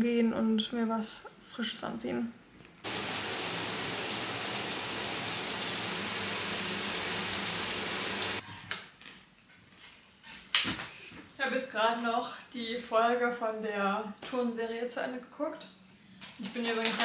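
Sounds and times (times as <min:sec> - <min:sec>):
shower water spraying: 0:02.8 - 0:08.4.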